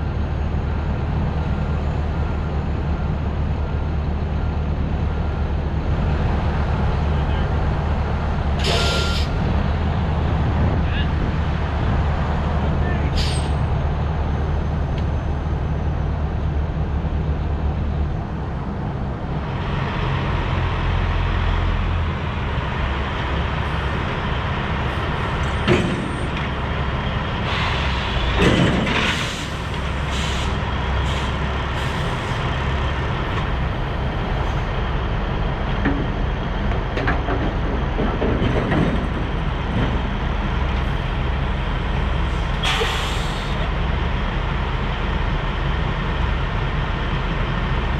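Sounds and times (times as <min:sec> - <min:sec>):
diesel truck engine idling: 0:29.4 - 0:38.3.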